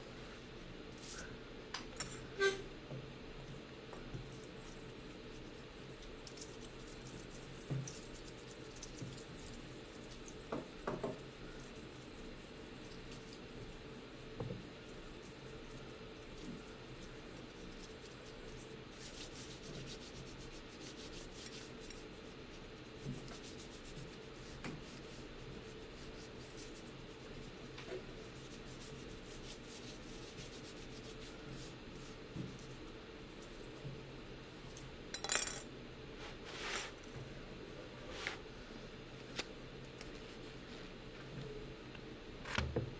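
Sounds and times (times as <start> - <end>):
hand rubbing paper: 4.3 - 33.6.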